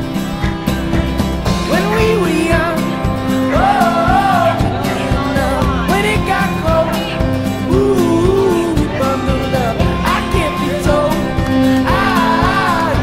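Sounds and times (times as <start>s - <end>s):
song with person singing: 1.5s - 13.0s.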